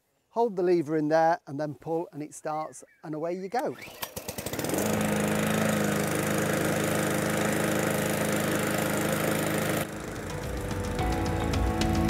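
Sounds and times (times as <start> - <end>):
push mower engine running: 3.7 - 12.0.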